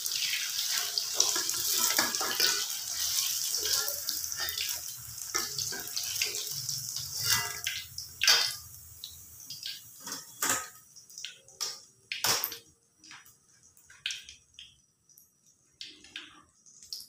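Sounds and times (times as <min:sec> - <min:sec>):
hot oil sizzling in a wok: 0:00.0 - 0:12.6.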